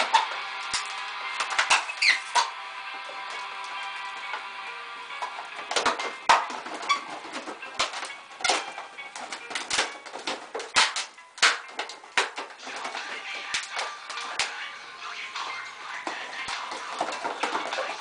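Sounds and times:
balloons squeaking and rubbing: 0:00.0 - 0:02.6, 0:05.4 - 0:14.5, 0:15.6 - 0:18.0.

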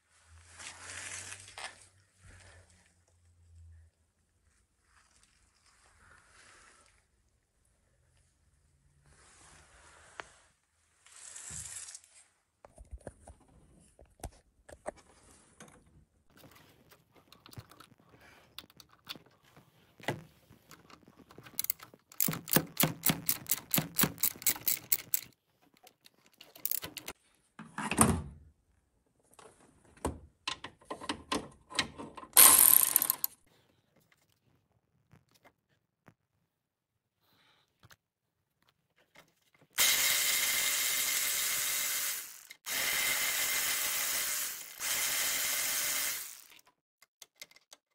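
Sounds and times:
tools clattering: 0:20.7 - 0:27.2
ratchet wrench clicking: 0:21.6 - 0:25.4, 0:26.0 - 0:27.1, 0:32.4 - 0:33.3, 0:39.8 - 0:46.6.

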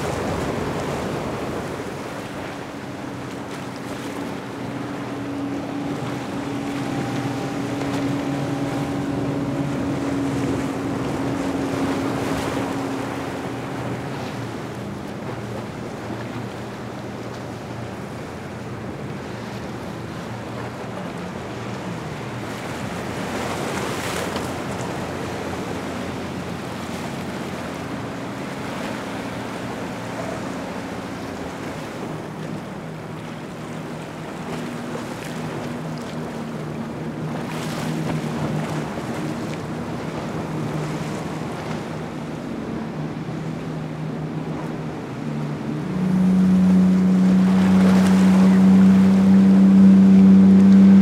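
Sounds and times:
powerboat engines passing: 0:00.0 - 0:51.0
water rushing from hulls: 0:00.0 - 0:51.0
wind on microphone: 0:37.1 - 0:51.0.

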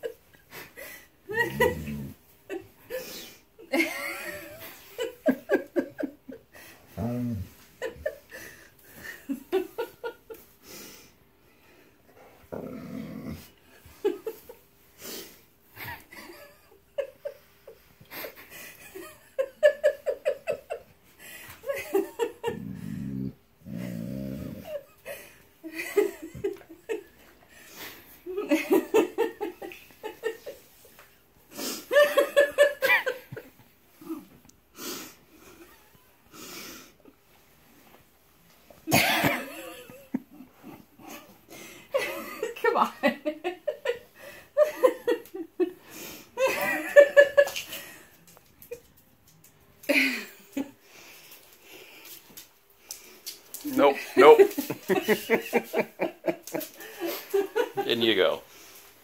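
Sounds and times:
dog grumbling and groaning: 0:01.3 - 0:02.3, 0:06.9 - 0:07.6, 0:12.5 - 0:13.6, 0:22.4 - 0:24.9
person laughing: 0:01.3 - 0:03.1.

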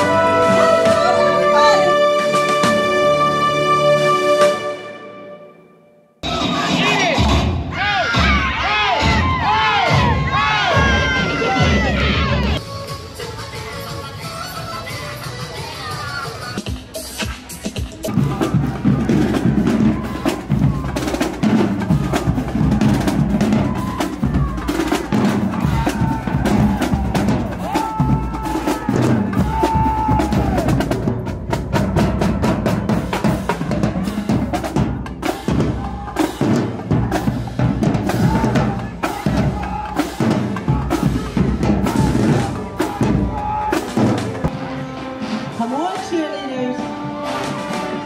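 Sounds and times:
held brass notes: 0:00.0 - 0:06.7, 0:18.1 - 0:48.0
snare and bass drums: 0:16.5 - 0:44.6.

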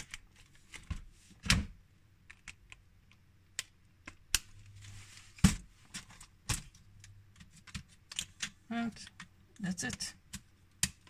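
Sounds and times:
plastic parts clicking and tapping: 0:02.2 - 0:04.5, 0:05.5 - 0:11.0.

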